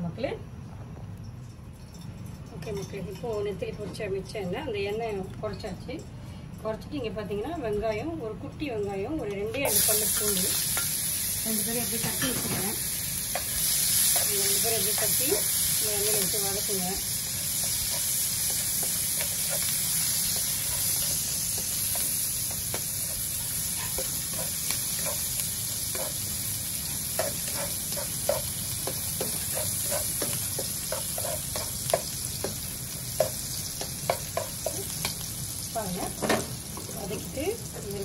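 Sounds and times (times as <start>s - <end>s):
shallots and garlic sizzling in oil: 7.0s - 38.0s
spatula tapping pan: 13.2s - 35.3s.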